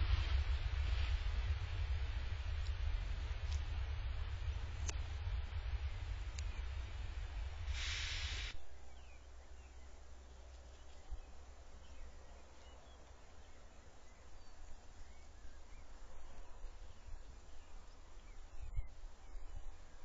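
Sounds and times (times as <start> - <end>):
low rumble: 0.0 - 10.2
brief hiss: 7.6 - 8.6
faint bird chirps: 8.6 - 20.0.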